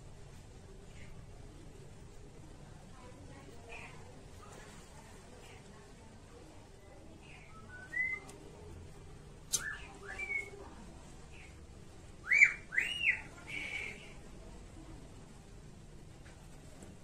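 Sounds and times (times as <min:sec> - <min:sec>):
bird whistling calls: 0:07.4 - 0:08.4, 0:09.5 - 0:10.6, 0:12.2 - 0:14.2
sharp click: 0:09.5 - 0:09.7.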